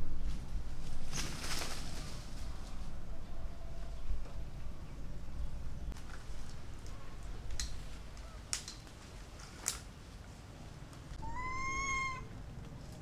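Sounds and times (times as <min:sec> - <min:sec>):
monkey call: 0:11.2 - 0:12.3.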